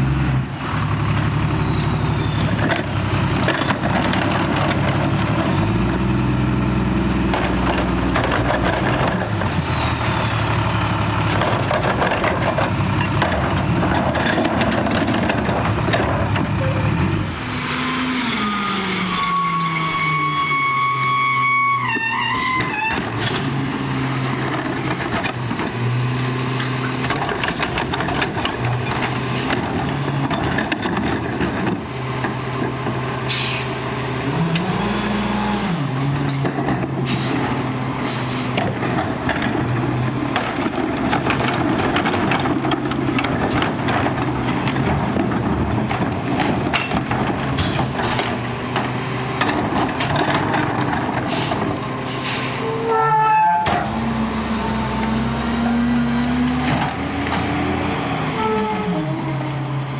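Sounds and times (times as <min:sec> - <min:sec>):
garbage truck engine running: 0:00.0 - 0:20.1, 0:22.3 - 0:59.9
air brake hisses: 0:33.3 - 0:33.8, 0:51.3 - 0:52.6.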